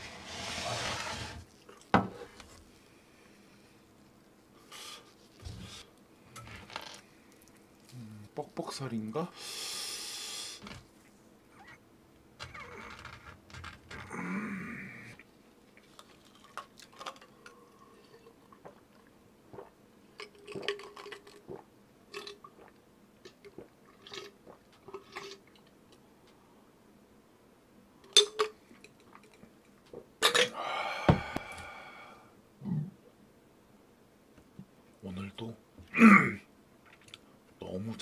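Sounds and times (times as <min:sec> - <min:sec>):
chewing and mouth smacks: 0:18.4 - 0:25.7.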